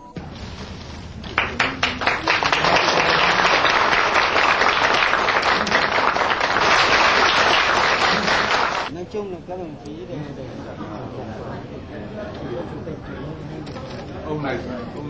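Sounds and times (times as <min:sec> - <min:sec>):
crowd applauding: 0:01.2 - 0:08.9.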